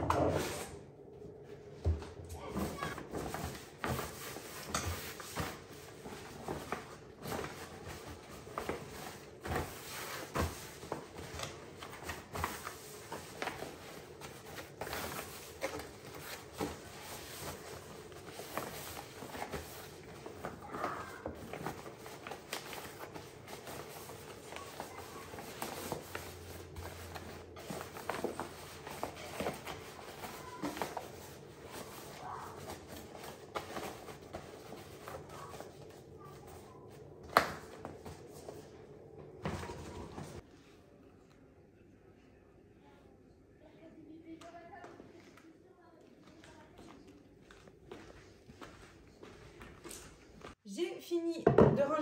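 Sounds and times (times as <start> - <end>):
plastic bags rustling: 2.6 - 36.7.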